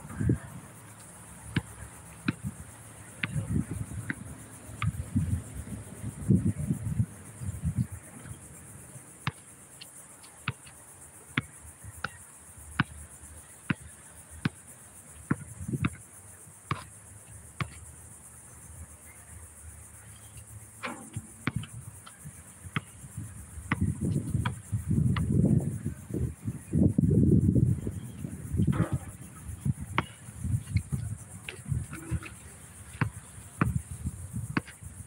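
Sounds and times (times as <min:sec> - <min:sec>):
high insect drone: 0:00.0 - 0:35.0
basketball bouncing on concrete: 0:01.5 - 0:02.6, 0:03.2 - 0:05.0, 0:20.8 - 0:21.8, 0:22.7 - 0:23.0, 0:23.7 - 0:25.4, 0:30.0 - 0:32.3, 0:32.9 - 0:33.8, 0:34.6 - 0:34.8.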